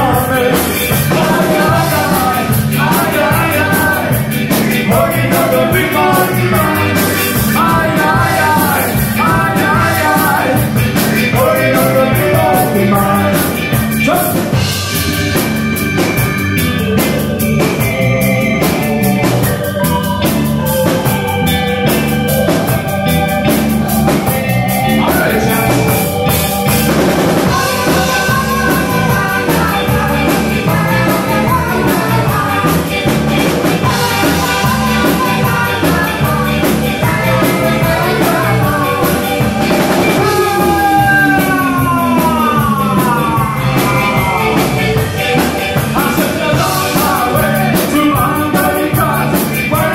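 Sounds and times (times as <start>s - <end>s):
person singing: 0.0s - 14.6s, 24.8s - 26.8s, 27.4s - 49.9s
drum kit: 0.0s - 49.9s
electric guitar: 0.0s - 49.9s
ska band playing: 0.0s - 49.9s.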